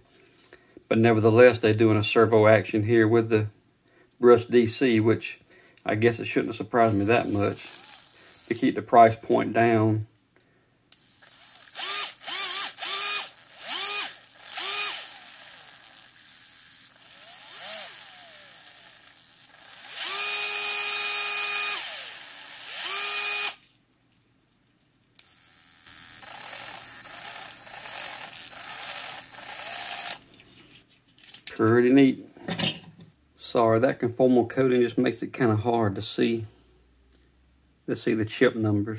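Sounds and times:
electric motor whirring: 0:06.8 - 0:08.6, 0:11.0 - 0:23.6, 0:25.2 - 0:30.2.

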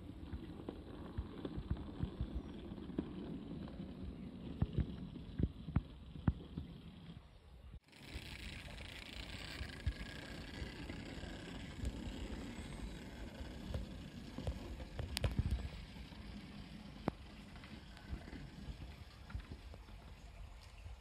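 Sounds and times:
wheels clicking over rail joints: 0:00.0 - 0:21.0
model train running: 0:07.9 - 0:15.0.

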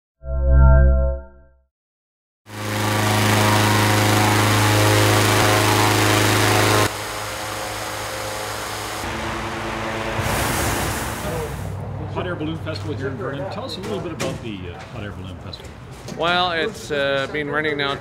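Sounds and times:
small petrol engine fan running: 0:02.5 - 0:11.6.

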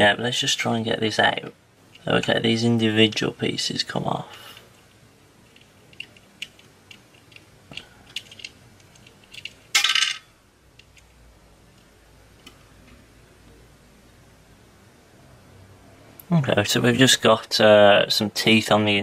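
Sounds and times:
plastic parts clattering: 0:05.5 - 0:10.3.

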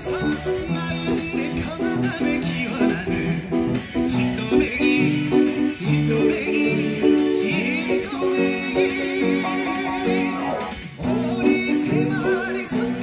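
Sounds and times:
recorded song with vibrato singing: 0:00.0 - 0:13.0
upright piano chords: 0:06.5 - 0:10.8.

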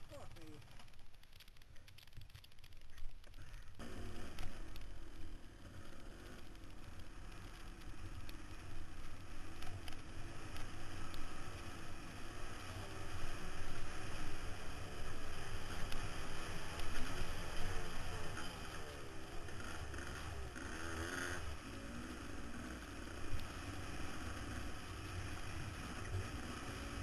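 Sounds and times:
dirt bike engine revving: 0:15.4 - 0:27.0.

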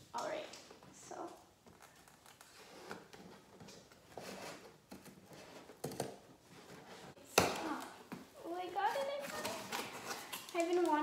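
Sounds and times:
cardboard rustling and scraping: 0:02.0 - 0:07.2, 0:08.7 - 0:10.3.

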